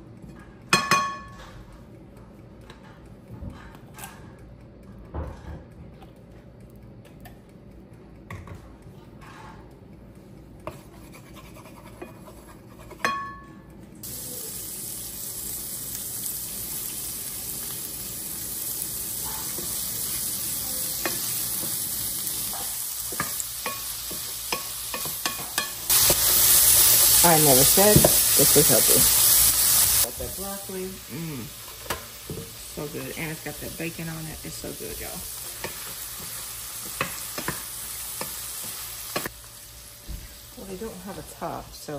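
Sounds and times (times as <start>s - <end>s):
shrimp sizzling in oil: 14.0s - 41.7s.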